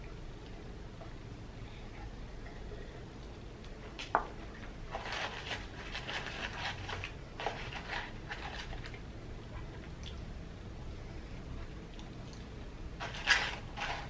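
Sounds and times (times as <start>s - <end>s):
paper carton rustling: 4.9s - 8.9s, 13.0s - 14.0s.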